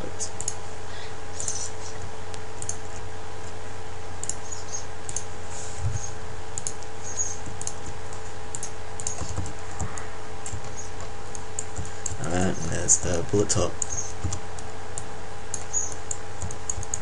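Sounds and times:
steady background hum: 0:00.0 - 0:17.0
computer mouse clicks: 0:01.4 - 0:01.7, 0:02.6 - 0:02.8, 0:04.2 - 0:05.3, 0:06.0 - 0:12.2, 0:13.8 - 0:17.0.

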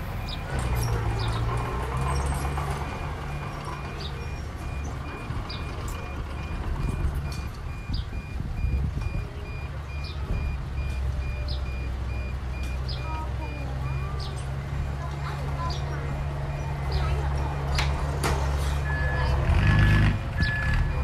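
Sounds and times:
high-pitched reversing beeps: 0:00.0 - 0:01.4, 0:02.0 - 0:14.4
diesel engine rumbling: 0:00.0 - 0:21.0.

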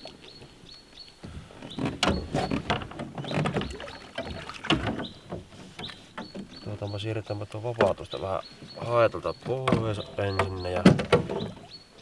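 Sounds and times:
net and fish knocking on boat: 0:01.8 - 0:06.6.

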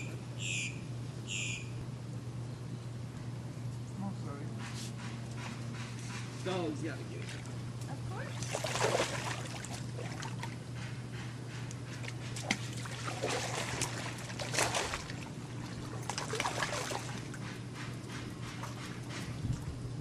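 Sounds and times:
steady low hum: 0:00.0 - 0:20.0
pool water splashing: 0:07.0 - 0:10.7, 0:11.8 - 0:17.8.

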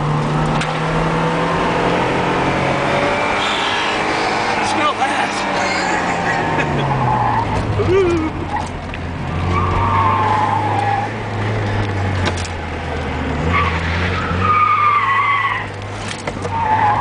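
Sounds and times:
car engine: 0:00.0 - 0:17.0
tires squealing: 0:03.1 - 0:11.9, 0:13.2 - 0:17.0.

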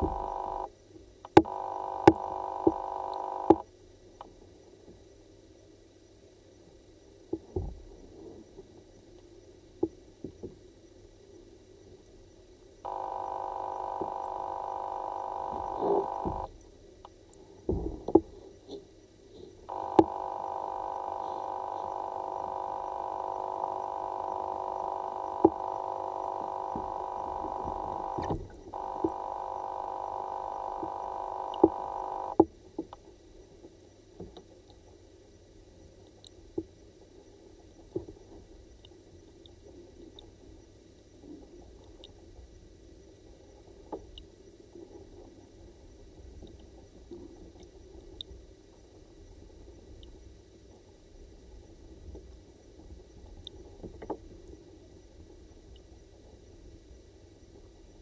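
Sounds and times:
underwater droning hum: 0:00.0 - 0:00.7, 0:01.4 - 0:03.6, 0:12.9 - 0:18.6, 0:19.3 - 0:58.0.

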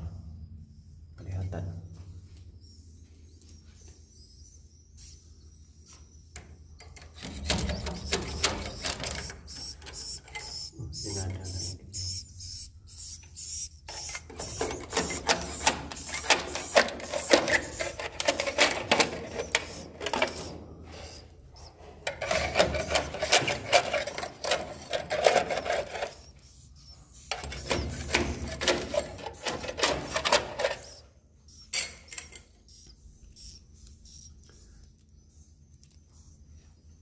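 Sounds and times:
swiftlets clicking and chirping: 0:03.3 - 0:37.0.

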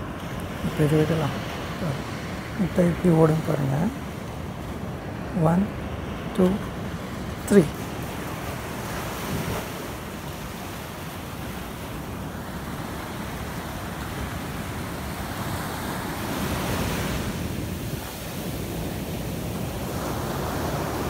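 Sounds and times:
surf washing up a beach: 0:00.0 - 0:21.0.

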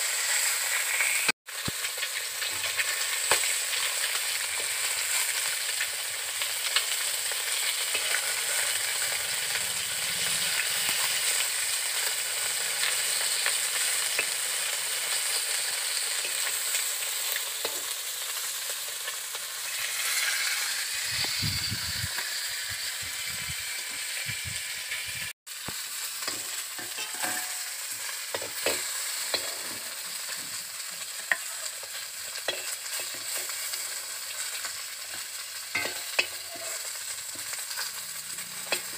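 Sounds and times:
fish frying in hot oil: 0:00.0 - 0:38.9
metal spatula scraping a pan: 0:06.8 - 0:14.4, 0:19.6 - 0:25.3, 0:26.2 - 0:38.9.

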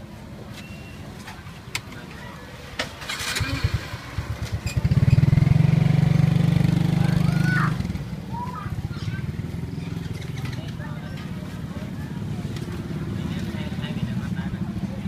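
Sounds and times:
motorbike engine running: 0:03.1 - 0:10.5.

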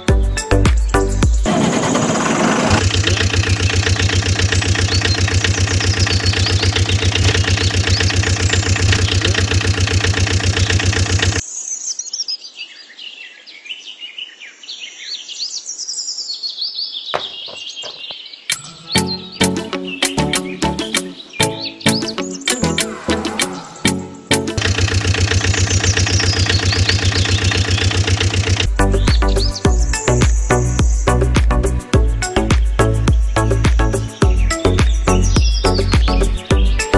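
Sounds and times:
birds chirping: 0:00.0 - 0:36.9
engine starting and idling: 0:01.5 - 0:11.4, 0:24.5 - 0:28.7.

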